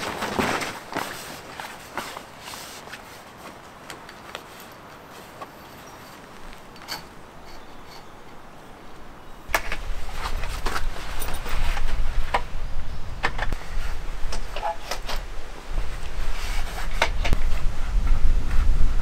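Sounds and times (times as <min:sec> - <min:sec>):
fabric rustling: 0:00.0 - 0:07.1.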